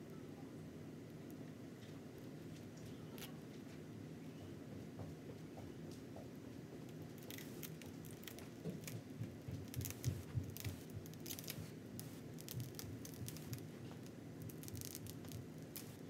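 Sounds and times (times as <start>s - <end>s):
plastic film crackling as peeled: 7.1s - 16.0s.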